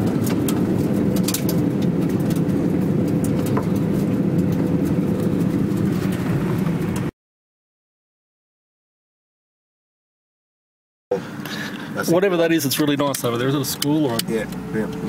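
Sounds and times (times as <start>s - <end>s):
small clicks and rattles: 0.0s - 7.1s
car engine and road noise: 0.0s - 7.2s, 11.1s - 15.0s.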